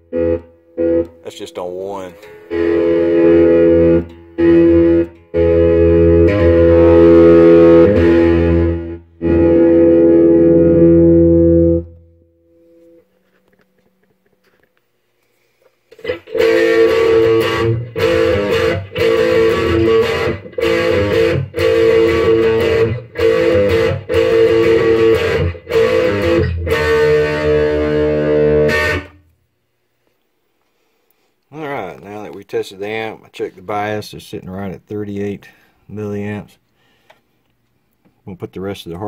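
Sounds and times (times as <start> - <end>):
electric guitar chords: 0.0 - 1.2, 2.2 - 13.1, 15.9 - 29.4.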